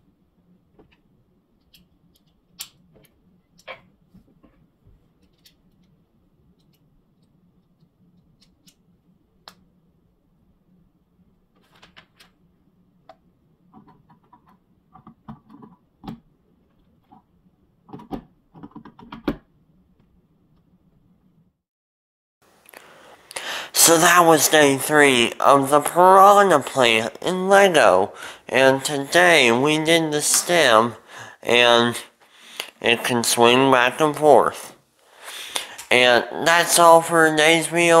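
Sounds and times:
faint low hum: 0:00.0 - 0:21.6.

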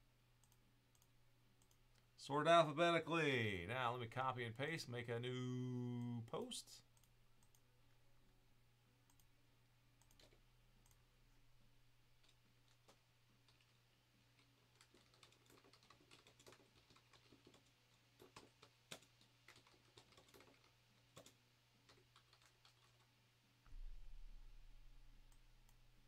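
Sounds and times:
low electrical hum: 0:00.0 - 0:26.0
keyboard typing clicks: 0:00.4 - 0:01.8, 0:10.0 - 0:11.0, 0:14.4 - 0:23.0.

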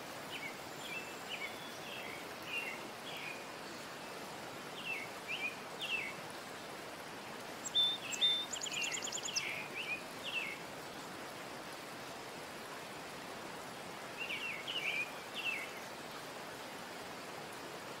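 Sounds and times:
steady hiss: 0:00.0 - 0:18.0
small birds chirping: 0:07.6 - 0:10.6.

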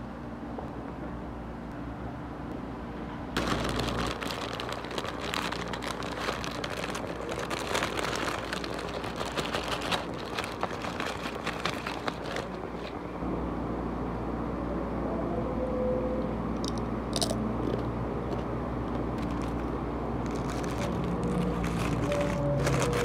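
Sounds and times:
paper wrapper crinkling: 0:03.4 - 0:13.0, 0:19.2 - 0:23.0.

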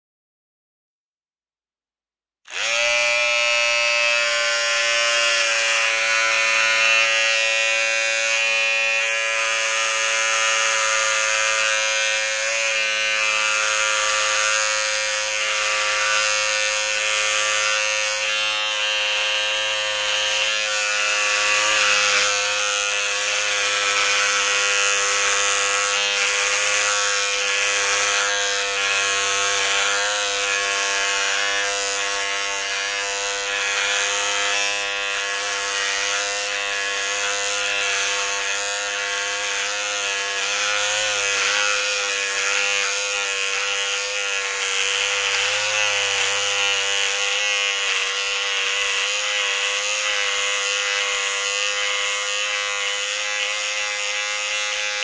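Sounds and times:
electric beard trimmer buzzing: 0:02.5 - 0:55.0.

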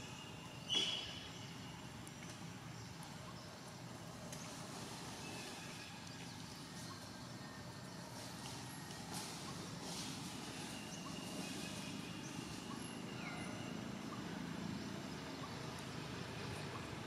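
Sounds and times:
faint short chirps and whistles: 0:00.7 - 0:01.2.

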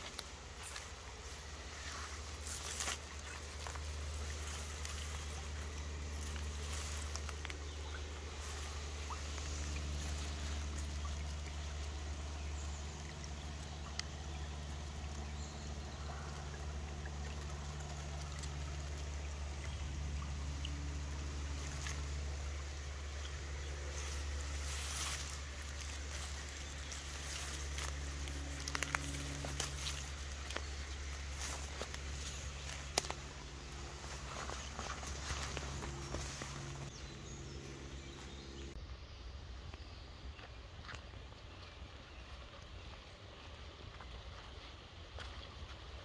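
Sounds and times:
small clicks and rustles: 0:00.0 - 0:12.1
water trickling: 0:00.0 - 0:38.8
steady low rumble: 0:00.0 - 0:45.2.

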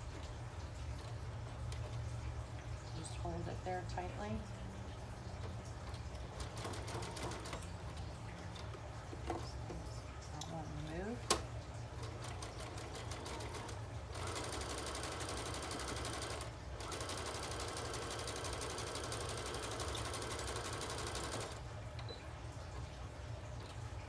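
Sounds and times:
sewing machine stitching: 0:06.3 - 0:07.6, 0:12.0 - 0:21.6.

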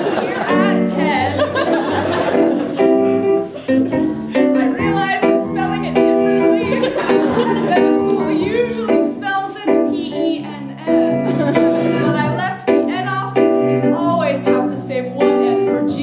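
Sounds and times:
electric keyboard chords: 0:00.0 - 0:16.0
woman singing into a microphone: 0:04.4 - 0:07.0, 0:07.6 - 0:11.3, 0:11.9 - 0:16.0.

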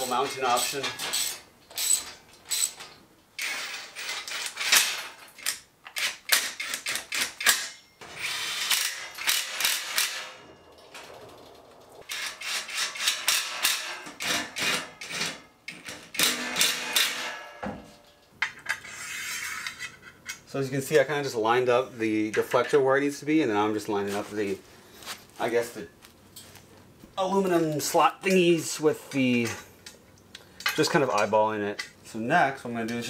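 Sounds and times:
metal hardware rattling: 0:07.4 - 0:14.0.

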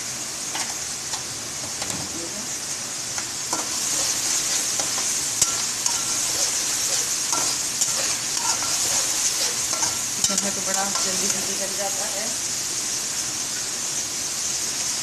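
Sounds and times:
food sizzling in oil: 0:00.0 - 0:15.0
metal spatula scraping pan: 0:03.5 - 0:11.9.

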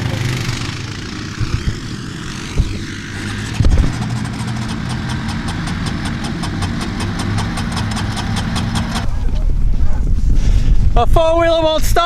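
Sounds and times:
electric starter cranking engine: 0:00.0 - 0:09.1.

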